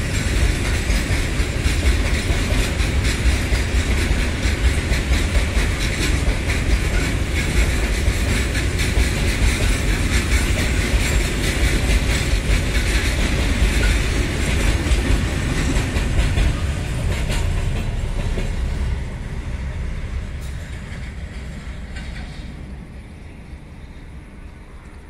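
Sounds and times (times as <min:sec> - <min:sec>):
wheels clicking over rail joints: 0:00.0 - 0:18.8, 0:20.4 - 0:23.3
freight train rolling past: 0:00.0 - 0:25.0.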